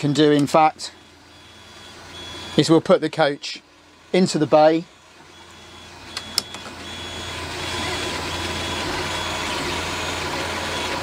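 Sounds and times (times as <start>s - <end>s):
sharp clicks: 6.1s - 6.7s.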